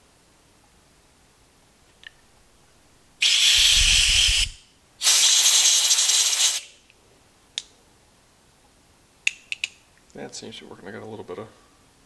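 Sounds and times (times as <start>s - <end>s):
compressed air blasts hissing: 3.2s - 6.8s.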